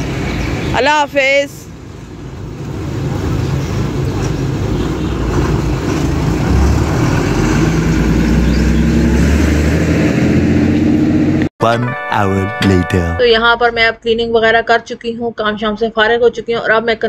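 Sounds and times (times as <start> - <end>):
bus engine driving past: 1.6 - 11.5.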